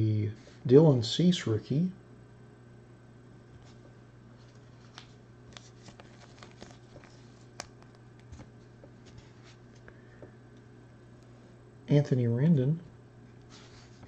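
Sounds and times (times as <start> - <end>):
steady low hum: 0.0 - 14.0
cards clicking and sliding: 4.8 - 8.5.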